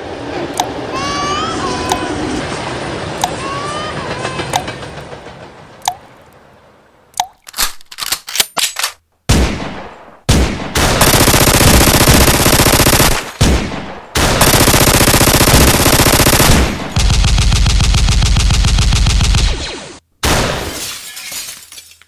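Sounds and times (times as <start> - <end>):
sharp clicks: 3.2 - 3.4
harsh rapid-fire blasts: 9.3 - 20.6.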